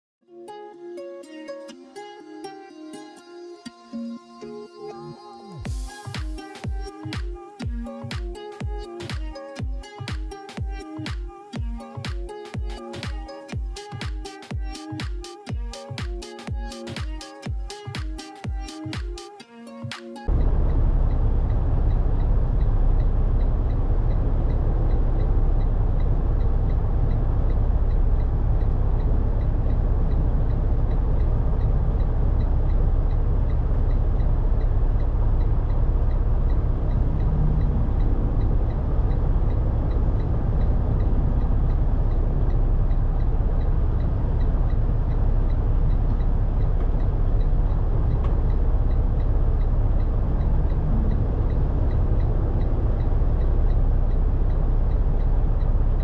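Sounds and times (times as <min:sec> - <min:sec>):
faint regular ticking: 0:05.7 - 0:56.0
truck diesel engine rumbling: 0:20.3 - 0:56.0.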